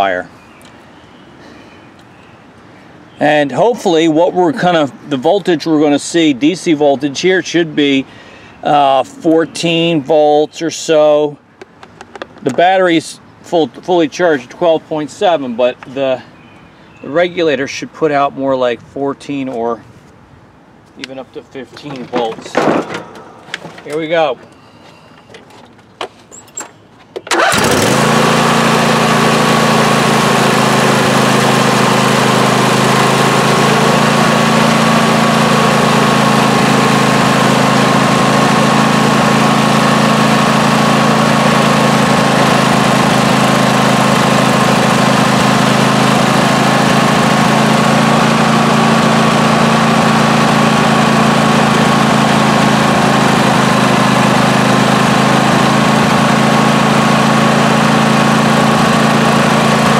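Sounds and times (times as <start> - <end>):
lawn tractor engine running: 21.6 - 59.9.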